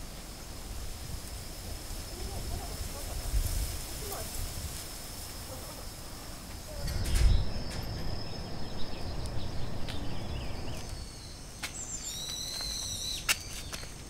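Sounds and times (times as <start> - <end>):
high insect tone: 0.0 - 14.0
birds calling: 5.0 - 14.0
long high whistled bird call: 6.7 - 13.9.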